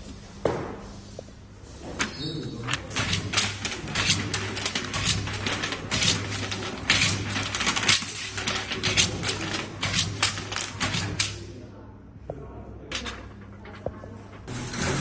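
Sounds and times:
foil clicking and crinkling: 0:02.8 - 0:11.4.

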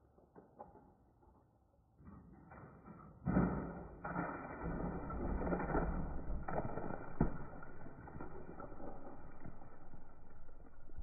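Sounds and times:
ice sliding off metal roof: 0:03.3 - 0:11.0
ice chunks hitting ground: 0:04.0 - 0:11.0.

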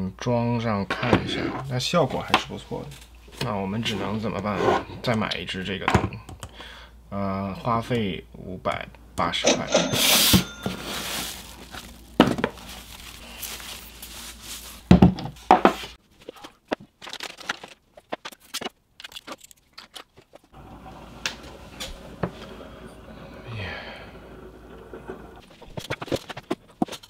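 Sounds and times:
plastic wrapping rustling: 0:10.6 - 0:20.4.

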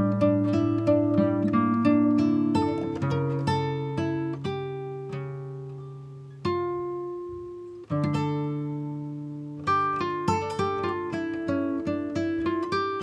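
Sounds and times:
plucked acoustic guitar: 0:00.0 - 0:13.0.

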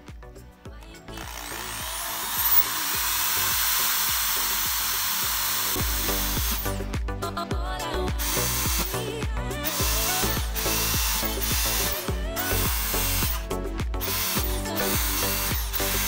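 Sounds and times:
background music: 0:00.0 - 0:16.0
electric drill boring through plastic: 0:01.0 - 0:07.0, 0:08.0 - 0:16.0.

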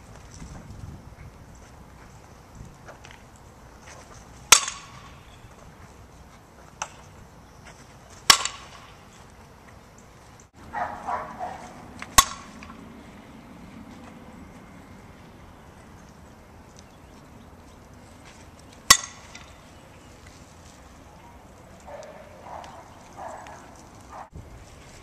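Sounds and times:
bat hitting ball cracks: 0:04.5 - 0:05.2, 0:08.2 - 0:09.0, 0:12.0 - 0:12.8, 0:18.8 - 0:19.6.

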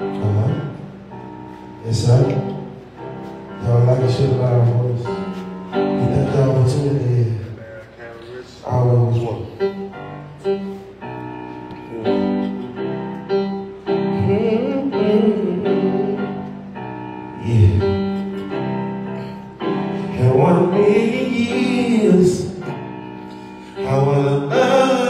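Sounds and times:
sustained keyboard chords: 0:00.0 - 0:25.0
person singing: 0:14.1 - 0:16.5, 0:23.8 - 0:25.0.

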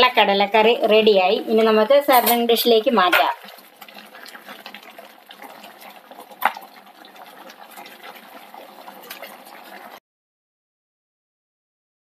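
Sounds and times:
thick curry pouring and sloshing: 0:03.3 - 0:10.0.

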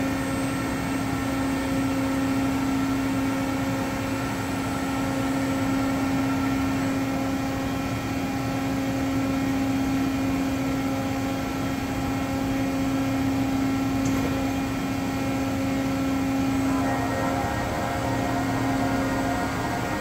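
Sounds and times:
milling machine humming: 0:15.4 - 0:20.0.

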